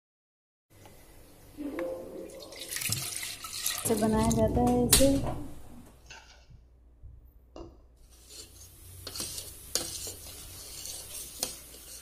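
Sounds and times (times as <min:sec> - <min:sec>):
spoon scraping steel pot: 0:08.0 - 0:12.0.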